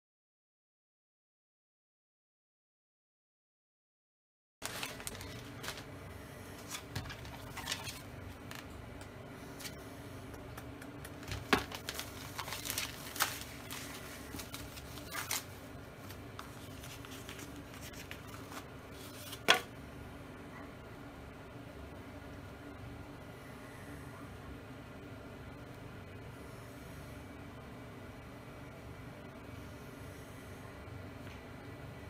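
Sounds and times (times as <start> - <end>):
plastic wrap crinkling and tearing: 4.6 - 5.9, 6.6 - 8.7, 11.2 - 19.5
steady low hum: 4.6 - 32.0.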